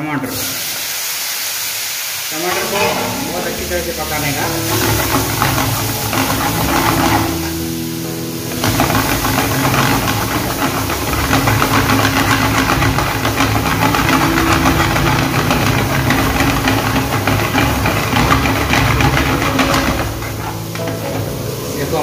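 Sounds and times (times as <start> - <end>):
food sizzling in a pan: 0.3 - 22.0
rush of fire crackling: 0.6 - 22.0
spoon stirring in a pan: 4.5 - 7.8, 8.5 - 21.8.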